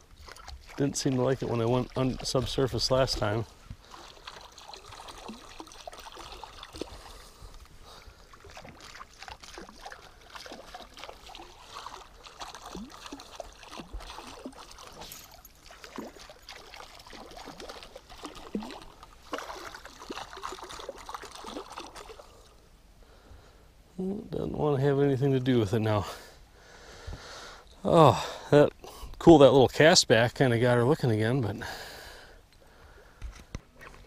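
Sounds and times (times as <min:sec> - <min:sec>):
water plops and gurgles: 0:00.0 - 0:22.6, 0:33.5 - 0:34.0.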